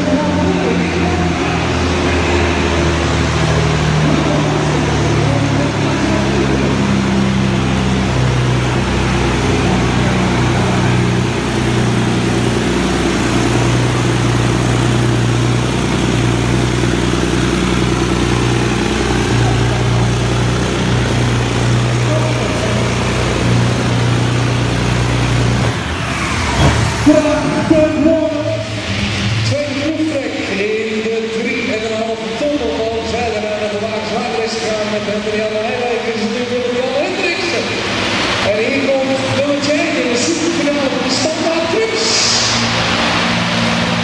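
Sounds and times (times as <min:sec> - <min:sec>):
truck diesel engine under load: 0:00.0 - 0:44.0.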